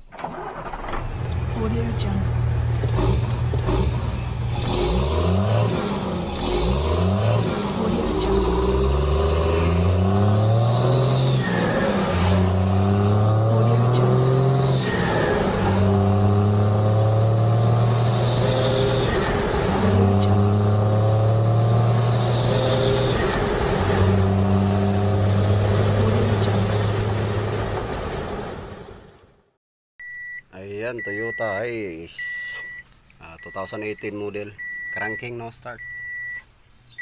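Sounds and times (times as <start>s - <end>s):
engine accelerating through gears: 0.3s - 29.4s.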